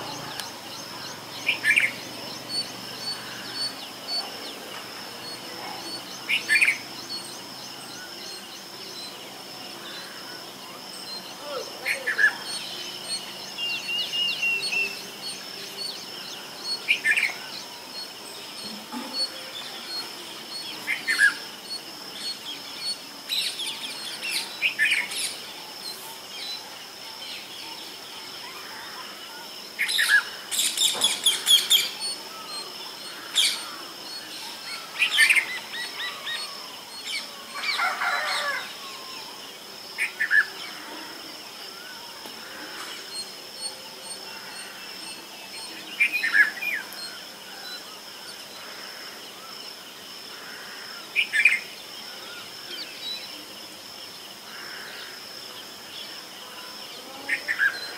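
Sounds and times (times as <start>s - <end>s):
bird chirping: 0.0s - 39.2s.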